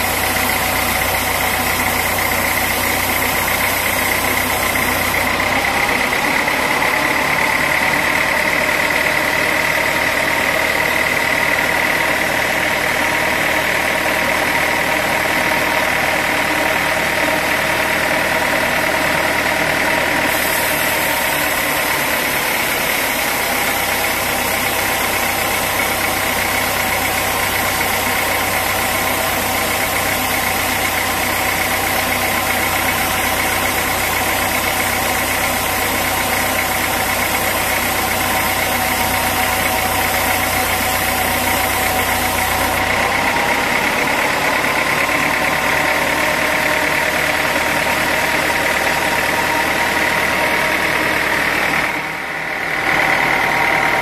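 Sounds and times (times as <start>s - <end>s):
sawmill machinery running: 0.0s - 54.0s
hiss: 20.2s - 43.0s.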